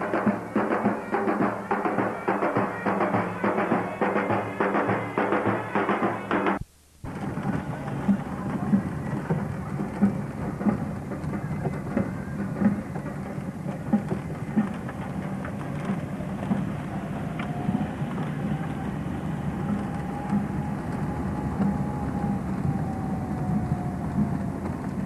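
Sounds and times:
car engine and road noise: 0:06.5 - 0:25.0.

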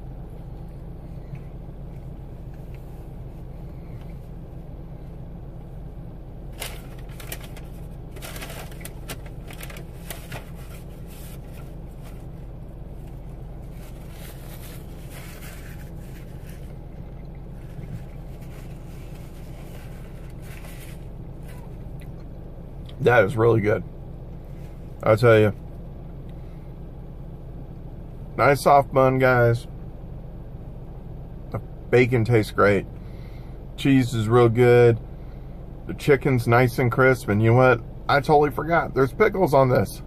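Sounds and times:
car engine idling: 0:00.0 - 0:40.0
crackles and rustles of eating: 0:06.5 - 0:22.9.

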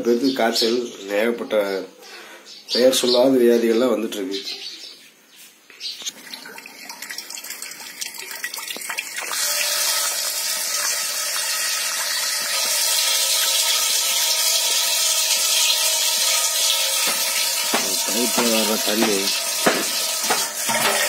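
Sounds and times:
water running from tap: 0:06.1 - 0:21.0.

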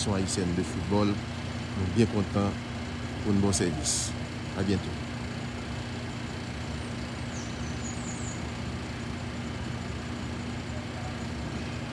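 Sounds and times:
low mechanical hum: 0:00.0 - 0:11.9.

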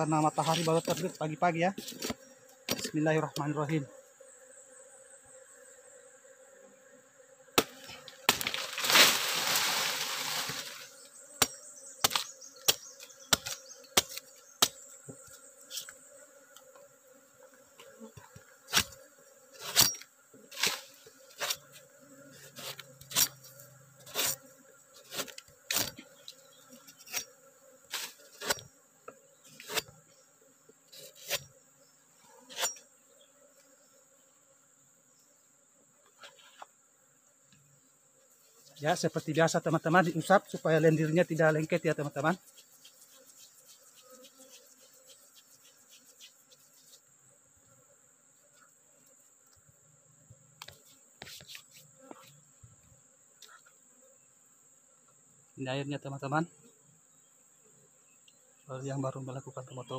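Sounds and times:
insect drone: 0:00.0 - 0:59.9
machete cutting stalk: 0:07.6 - 0:09.2, 0:11.4 - 0:14.8, 0:18.7 - 0:19.0, 0:19.6 - 0:21.6, 0:22.6 - 0:24.4, 0:25.1 - 0:26.0, 0:27.9 - 0:28.7, 0:29.6 - 0:29.9, 0:31.0 - 0:31.5, 0:32.5 - 0:32.8.

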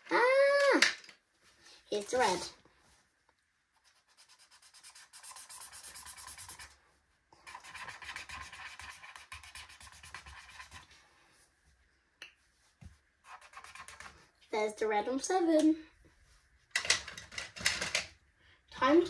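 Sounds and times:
felt-tip pen scribbling on paper: 0:03.8 - 0:06.7, 0:07.4 - 0:10.9, 0:13.3 - 0:14.2.

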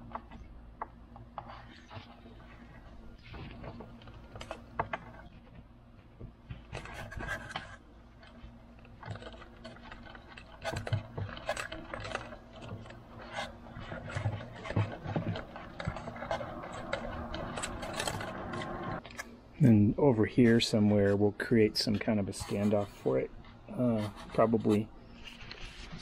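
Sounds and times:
clicks and short scrapes: 0:06.7 - 0:19.3.

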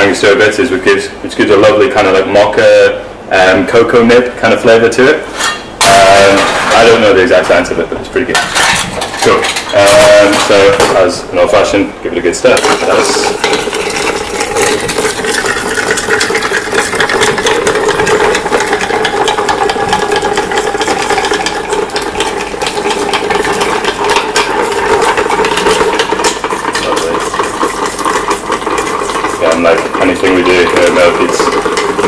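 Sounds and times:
ice rattling in metal tin: 0:08.4 - 0:10.8, 0:12.6 - 0:32.0.

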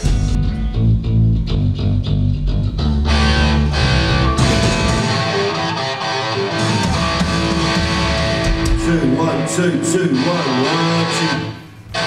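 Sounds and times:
drum kit: 0:00.0 - 0:09.6
electric guitar: 0:00.0 - 0:12.0
rock band playing: 0:00.0 - 0:12.0.

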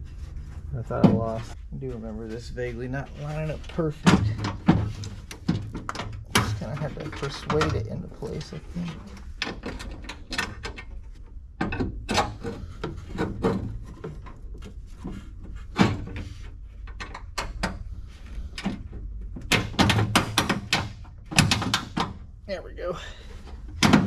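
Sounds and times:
scraping and rubbing: 0:00.0 - 0:10.0.

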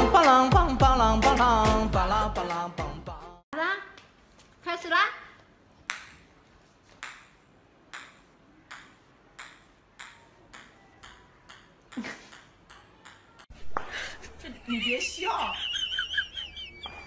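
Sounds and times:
ball pinging on tiled floor: 0:05.8 - 0:13.9.

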